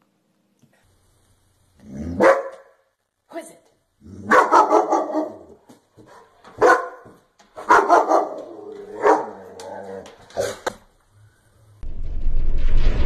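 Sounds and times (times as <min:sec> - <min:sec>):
dog barking: 0:02.1 - 0:02.9, 0:04.2 - 0:09.6.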